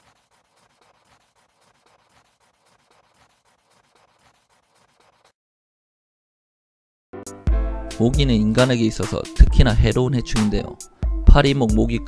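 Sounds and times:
pencil sketching on paper: 0:00.0 - 0:05.4.

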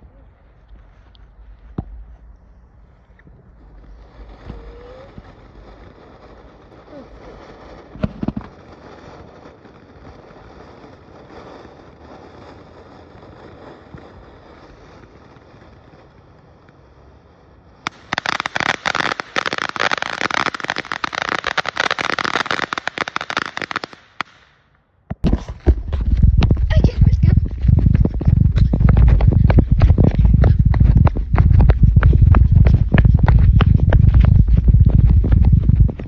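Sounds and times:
firework hissing: 0:03.5 - 0:24.5
firework pops: 0:03.6 - 0:10.5, 0:17.9 - 0:36.0
loud dense crackle: 0:03.6 - 0:16.4, 0:17.9 - 0:24.2, 0:25.1 - 0:36.0.

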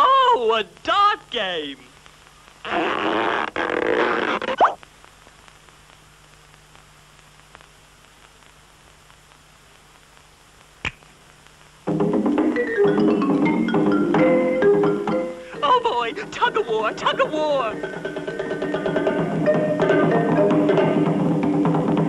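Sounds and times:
steady low hum: 0:00.0 - 0:22.0
sharp click: 0:10.8 - 0:11.1
cartoon soundtrack music: 0:11.9 - 0:22.0.

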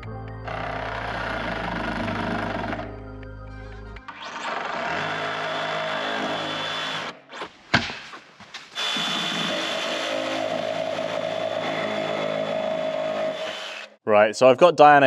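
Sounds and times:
cordless drill boring through plastic: 0:04.4 - 0:07.4, 0:08.8 - 0:14.0.

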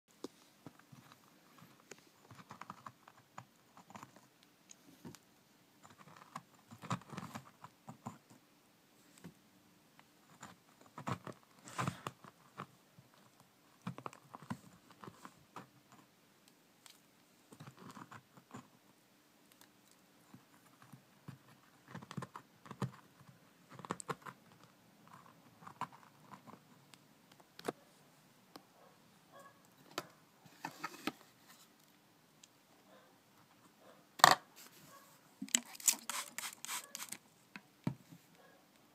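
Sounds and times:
metal utensil scraping substrate: 0:35.5 - 0:37.2.

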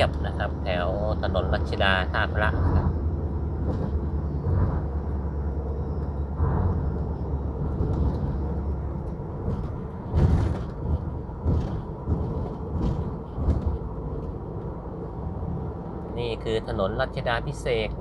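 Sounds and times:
car engine hum: 0:00.0 - 0:18.0
road noise: 0:00.0 - 0:18.0
dull thumps: 0:09.4 - 0:13.9.

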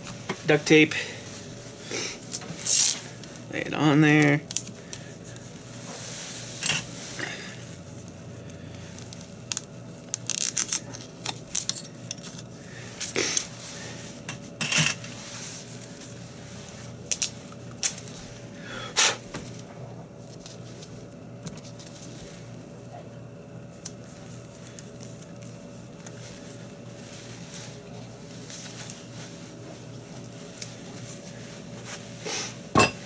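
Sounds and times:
steady hum: 0:00.0 - 0:33.0
tape rustling: 0:08.8 - 0:13.5.

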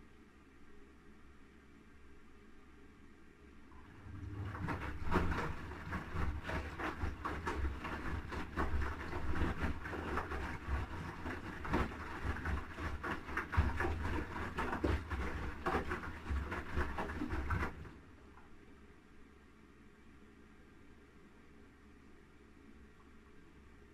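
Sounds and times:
washing machine motor hum: 0:03.7 - 0:18.7
wet clothes sloshing in drum: 0:03.8 - 0:18.4.

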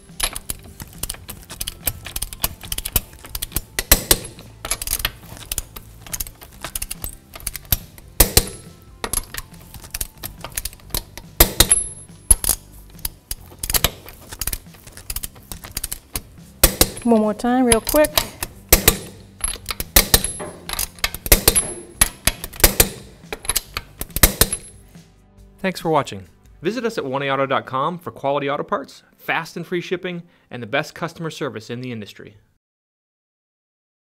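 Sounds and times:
torque wrench ratcheting ticks: 0:00.1 - 0:17.1.

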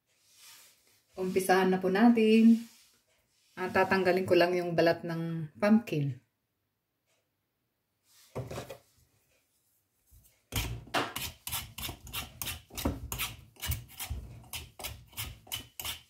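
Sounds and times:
vegetable peeler rasping pumpkin rind: 0:10.5 - 0:16.0.

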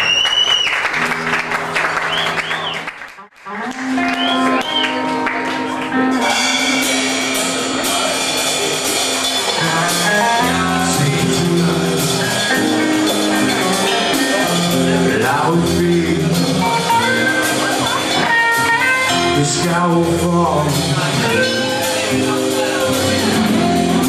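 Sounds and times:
drums: 0:00.0 - 0:24.0
electric guitar: 0:01.0 - 0:24.0
man singing lead vocals: 0:09.6 - 0:17.3, 0:19.0 - 0:24.0
deep bass: 0:09.6 - 0:24.0.

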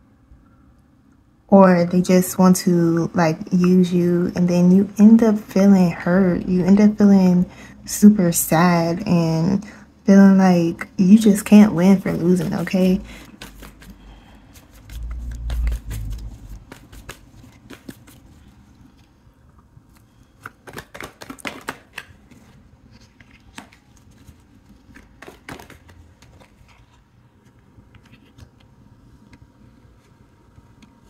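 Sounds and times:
cards clicking on a tabletop: 0:13.3 - 0:14.0, 0:14.8 - 0:18.2, 0:20.4 - 0:22.5, 0:24.9 - 0:26.6.

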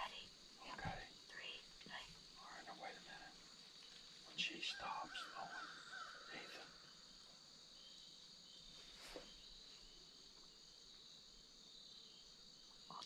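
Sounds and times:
faint high-pitched hum: 0:00.0 - 0:13.0.

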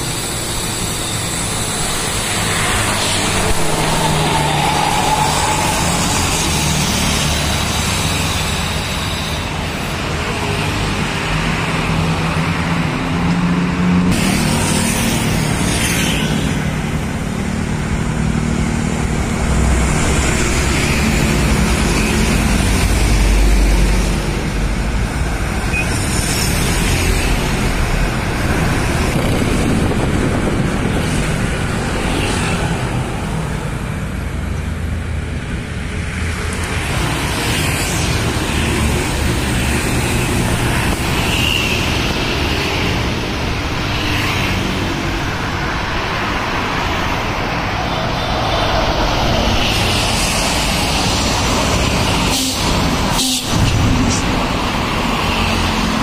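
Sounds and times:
buses passing: 0:00.0 - 0:56.0
cars passing: 0:00.0 - 0:56.0
rumble of engines and tyres: 0:00.0 - 0:56.0
motorcycles passing: 0:00.1 - 0:34.3.

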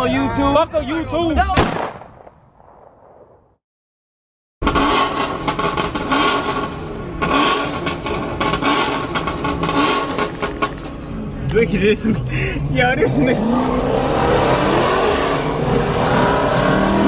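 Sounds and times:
car engine revving: 0:04.6 - 0:12.2, 0:12.8 - 0:17.0.

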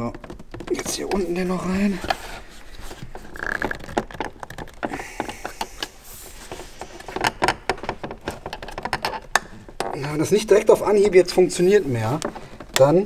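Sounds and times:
small plastic clicks and crackles: 0:03.1 - 0:05.9.

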